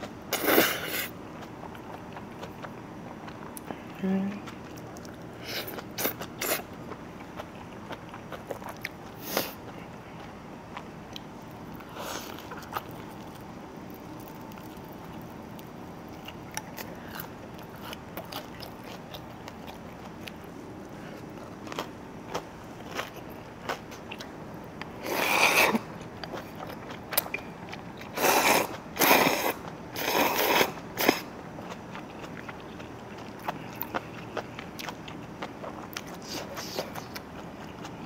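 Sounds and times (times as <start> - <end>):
quiet chewing: 0.0 - 38.0
loud slurping of noodles: 25.0 - 25.8, 28.2 - 31.3.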